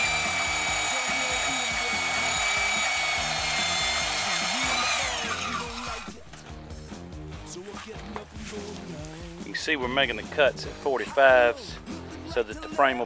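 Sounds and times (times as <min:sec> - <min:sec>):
band saw cutting steel: 0:00.0 - 0:06.4.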